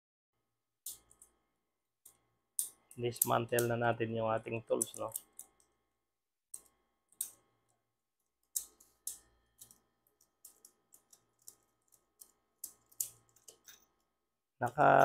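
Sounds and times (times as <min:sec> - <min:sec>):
small metal tools clicking: 0:00.8 - 0:01.4, 0:02.0 - 0:03.8, 0:04.6 - 0:05.8, 0:06.5 - 0:07.4, 0:08.2 - 0:14.1.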